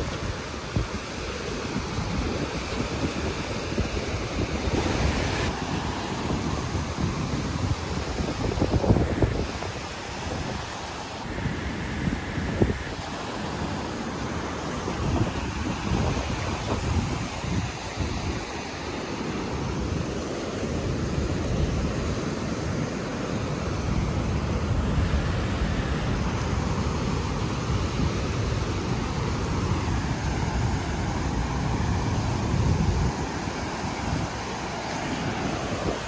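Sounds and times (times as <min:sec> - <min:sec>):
wind buffeting microphone: 0:00.0 - 0:22.9, 0:23.6 - 0:36.0
river rushing over rocks: 0:00.0 - 0:36.0.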